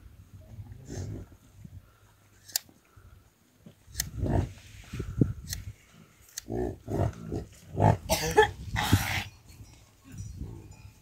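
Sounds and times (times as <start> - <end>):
yaks grunting: 6.4 - 9.2.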